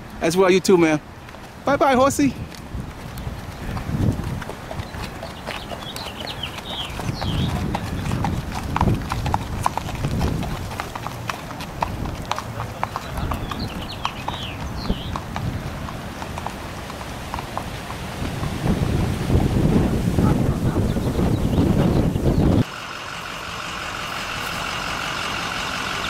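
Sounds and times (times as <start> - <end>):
horse hooves clip-clopping on pavement: 0.0 - 26.0.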